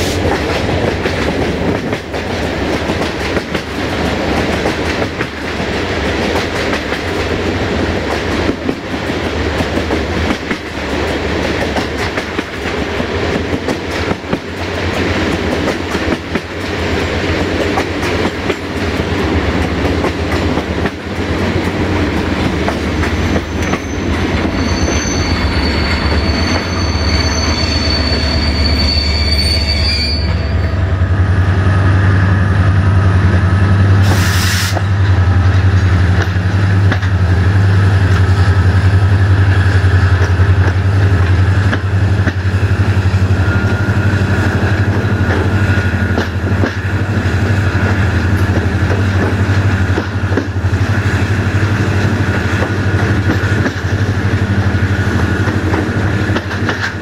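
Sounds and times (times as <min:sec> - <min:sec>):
train wheels clattering over rails: 0:00.0 - 0:27.0, 0:33.2 - 0:57.0
high-pitched wheel squeal: 0:23.2 - 0:30.9.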